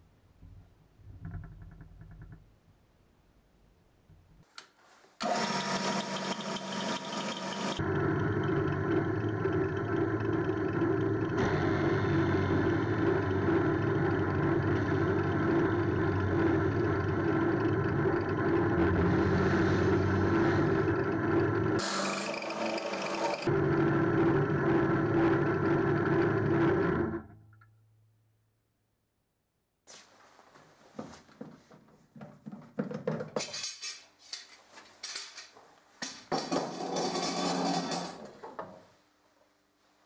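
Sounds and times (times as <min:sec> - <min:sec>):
drill press cutting plastic: 0:05.2 - 0:23.5.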